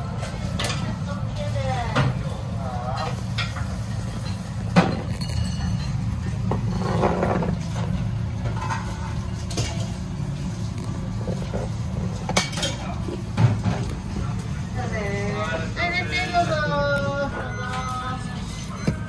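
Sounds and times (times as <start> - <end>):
steady low hum: 0.0 - 19.0
tableware clinks and knocks: 4.2 - 7.6, 12.2 - 13.8.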